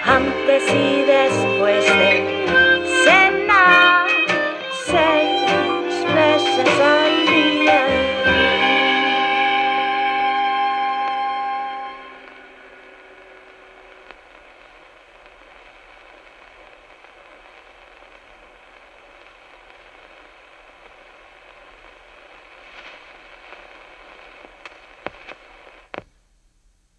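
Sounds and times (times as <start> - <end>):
held musical notes: 0.0 - 13.3
record surface crackle: 0.0 - 26.9.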